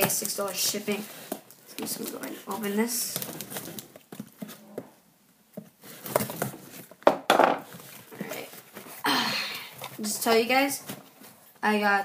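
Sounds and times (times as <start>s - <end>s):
hands opening cardboard box: 5.6s - 6.9s.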